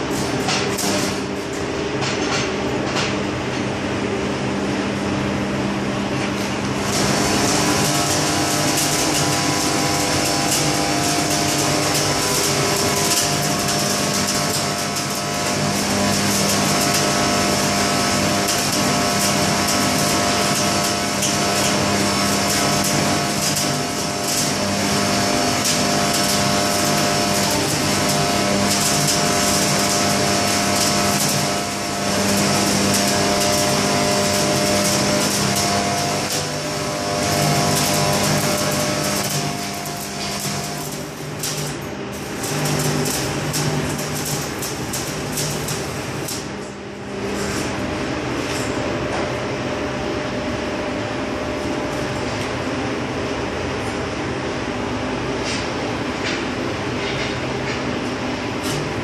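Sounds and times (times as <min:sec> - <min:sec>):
arc welding crackling: 0:00.0 - 0:01.7, 0:06.7 - 0:48.0
equipment humming: 0:00.0 - 0:59.0.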